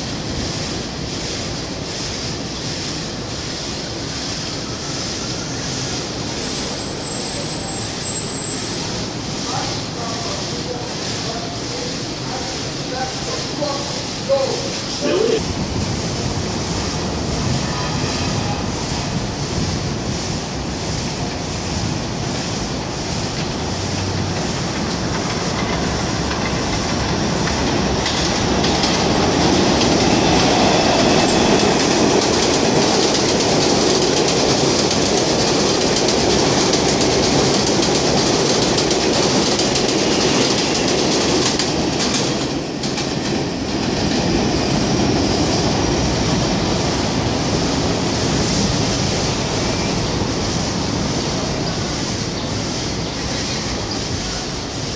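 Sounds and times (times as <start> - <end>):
train wheels clattering over rails: 0.0 - 54.9
wheel squeal: 6.4 - 9.0, 48.0 - 51.0.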